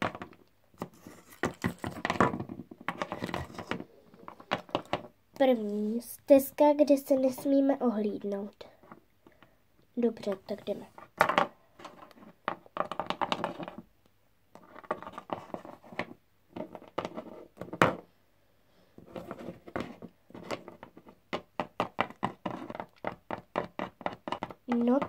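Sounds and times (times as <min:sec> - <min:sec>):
plastic figurines tapping on wood: 0:19.8 - 0:25.0.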